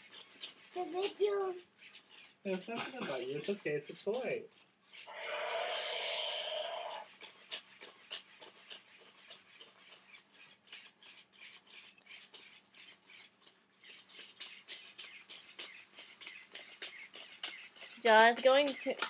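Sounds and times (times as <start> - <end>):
toy robot legs clicking: 0.0 - 19.0
loud harsh burst: 5.1 - 7.0.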